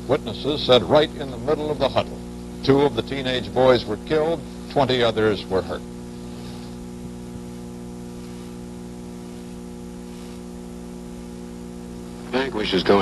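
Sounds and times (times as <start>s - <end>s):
electrical mains hum: 0.0s - 13.0s
light hiss: 6.1s - 12.5s.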